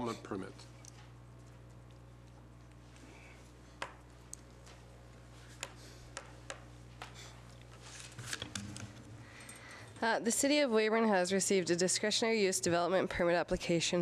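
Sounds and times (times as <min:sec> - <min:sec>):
rustling and shuffling: 0:06.8 - 0:09.2.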